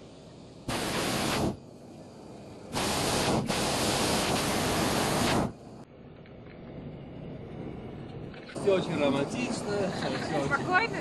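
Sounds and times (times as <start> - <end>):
propane burner firing: 0.0 - 5.9.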